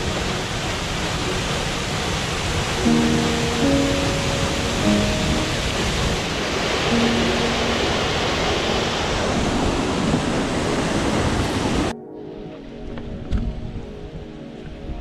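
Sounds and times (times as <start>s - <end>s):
waterfall rushing: 0.0s - 11.9s
background music: 2.8s - 8.6s, 11.9s - 15.0s.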